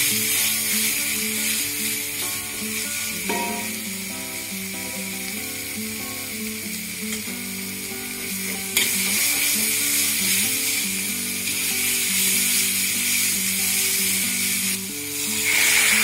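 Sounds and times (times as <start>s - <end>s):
paste sizzling in a wok: 0.0s - 16.0s
metal spatula scraping wok: 15.2s - 16.0s.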